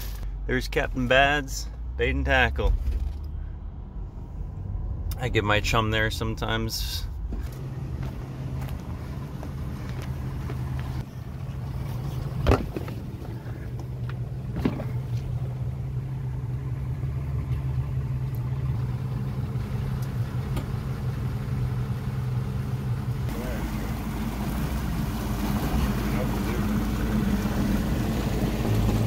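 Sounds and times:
low engine hum: 0.0s - 29.0s.

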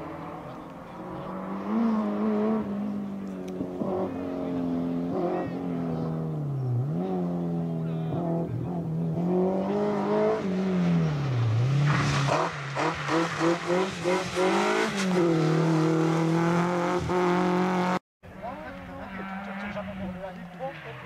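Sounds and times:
rally car engine revving: 0.0s - 18.0s, 18.7s - 21.0s.

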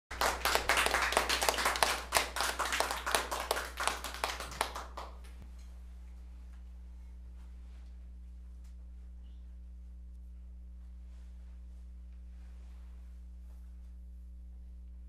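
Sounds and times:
audience applauding: 0.1s - 5.4s.

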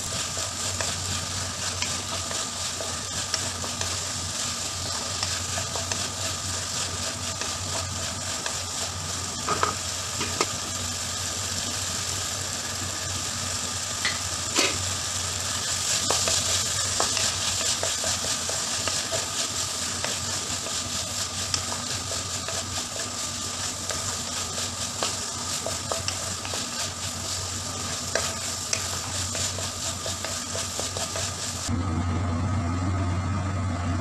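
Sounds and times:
vegetables sizzling in oil: 0.0s - 33.2s
spatula tapping and scraping pan: 1.6s - 4.1s, 4.8s - 6.2s, 9.4s - 10.6s, 16.0s - 31.6s.

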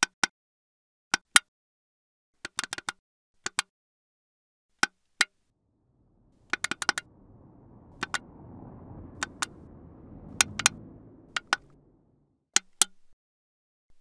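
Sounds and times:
low rumble: 5.6s - 12.4s.

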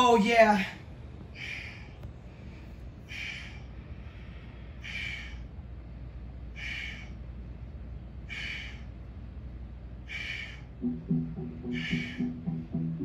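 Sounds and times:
faint low hum: 0.0s - 13.0s
person breathing hard: 1.3s - 5.6s, 6.5s - 7.2s, 8.2s - 9.0s, 10.0s - 10.8s, 11.6s - 13.0s.

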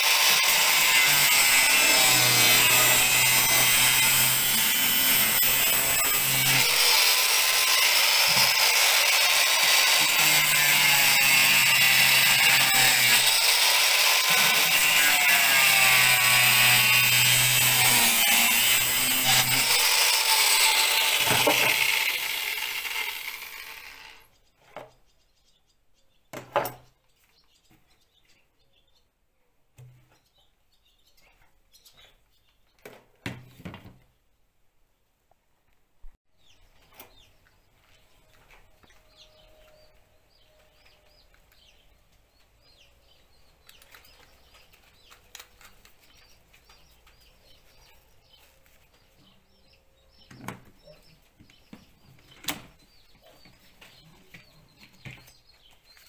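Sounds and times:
angle grinder cutting plastic: 0.0s - 24.3s.

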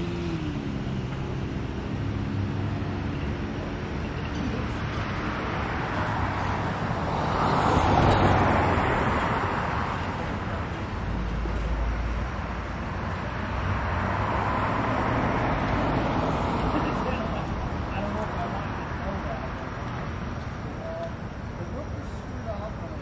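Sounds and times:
vehicle passing: 4.4s - 20.3s.

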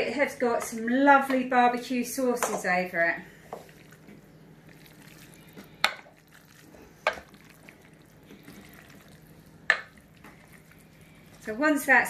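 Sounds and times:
spoon stirring in sauce: 3.3s - 11.5s.

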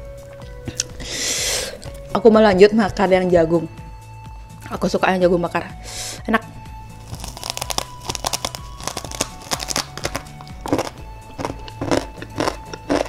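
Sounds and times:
background music: 0.0s - 13.0s
crunchy chewing: 7.0s - 13.0s.

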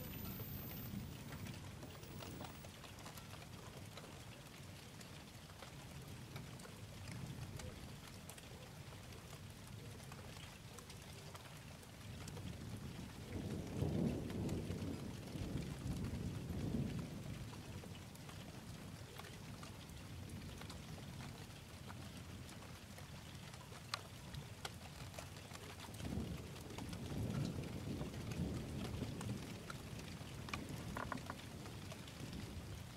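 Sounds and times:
thunder rolling: 0.0s - 2.6s
steady rain: 0.0s - 32.9s.

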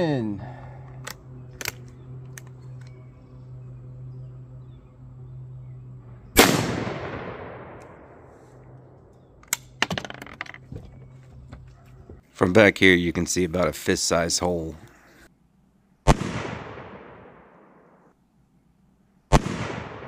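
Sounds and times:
sharp clicks: 0.8s - 3.0s
shotgun shot with echo: 6.4s - 7.8s, 16.1s - 17.5s, 19.3s - 20.0s.

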